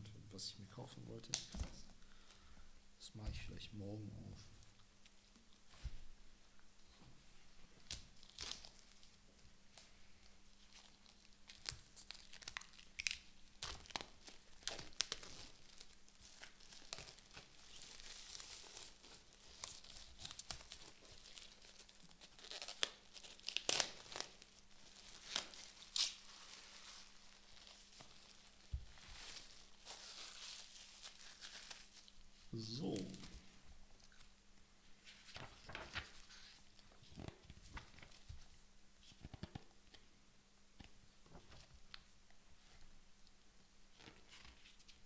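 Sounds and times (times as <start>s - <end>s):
plastic wrap tearing and crumpling: 7.9s - 9.2s, 10.6s - 32.2s.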